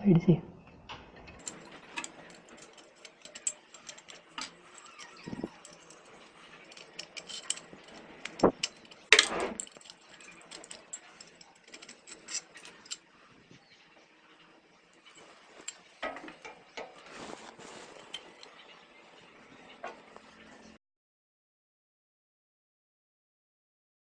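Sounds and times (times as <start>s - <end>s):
small metallic clicks and scrapes: 1.2s - 13.3s, 14.4s - 20.3s.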